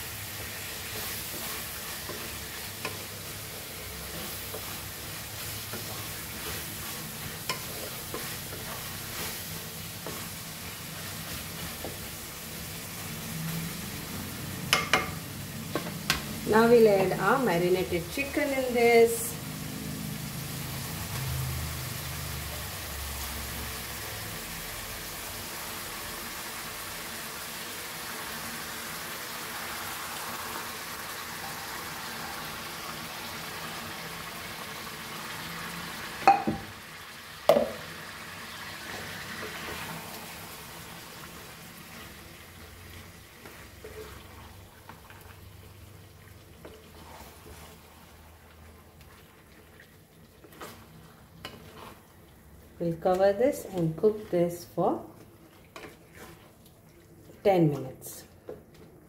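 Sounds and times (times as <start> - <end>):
chicken sizzling in hot oil: 0.0 - 58.2
spatula scraping pan: 0.4 - 12.2, 41.3 - 45.4, 46.6 - 48.2, 50.4 - 52.2, 55.5 - 56.6.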